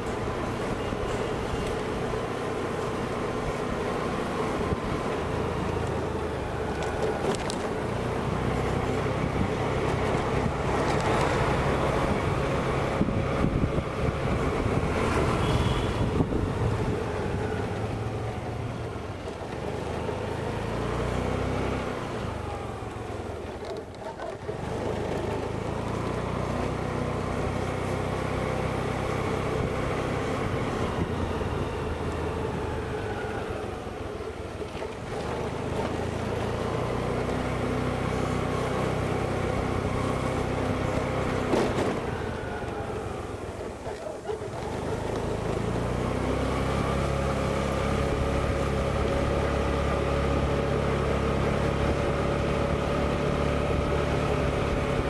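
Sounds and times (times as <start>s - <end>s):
scooter engine running: 0.0s - 55.0s
wind on microphone: 10.2s - 17.4s.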